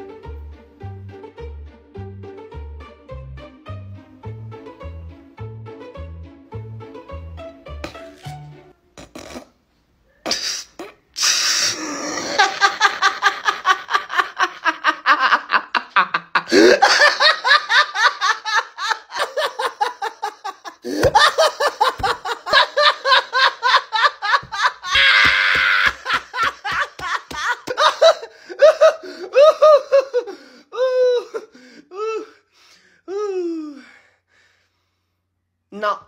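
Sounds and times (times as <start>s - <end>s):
man laughing loudly: 11.7s - 31.5s.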